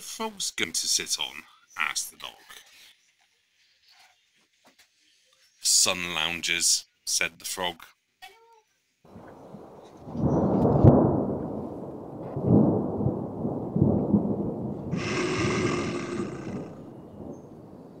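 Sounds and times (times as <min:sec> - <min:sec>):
deep rumbling: 0:09.1 - 0:18.0.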